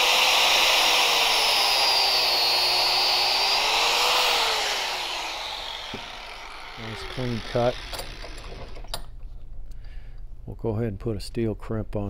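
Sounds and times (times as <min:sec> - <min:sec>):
angle grinder cutting hose: 0:00.0 - 0:09.0.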